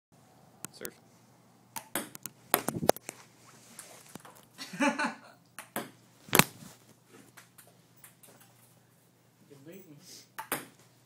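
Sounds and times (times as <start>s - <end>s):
table tennis ball clicks: 1.8s - 3.0s, 5.6s - 6.5s, 10.4s - 10.7s.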